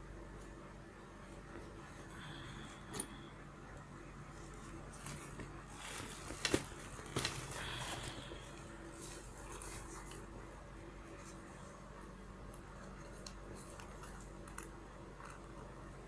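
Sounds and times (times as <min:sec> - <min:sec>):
fabric rustling: 0:04.3 - 0:10.3.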